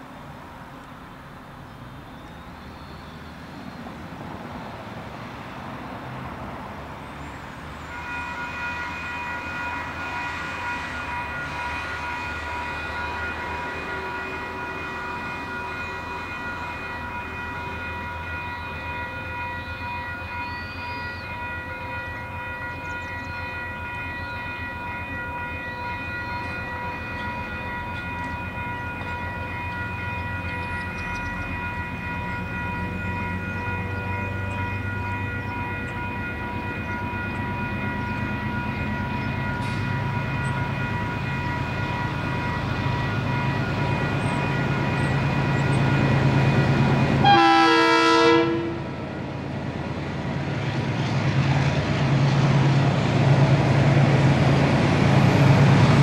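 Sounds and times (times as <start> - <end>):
diesel locomotives rumbling: 0.0 - 56.0
level crossing alarm bells ringing: 8.0 - 48.2.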